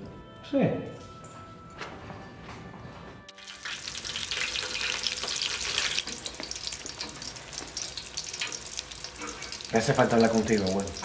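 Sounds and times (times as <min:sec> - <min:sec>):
crackly kitchen hiss: 0:03.3 - 0:11.0.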